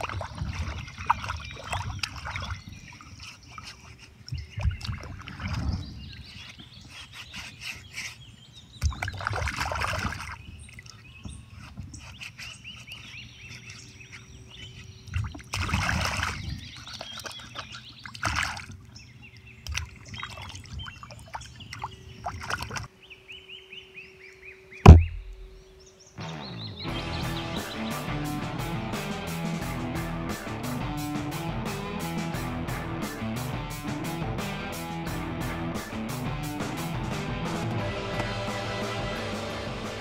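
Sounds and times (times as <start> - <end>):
creek water sloshing and splashing: 0.0 - 22.9
birds chirping faintly: 0.0 - 29.2.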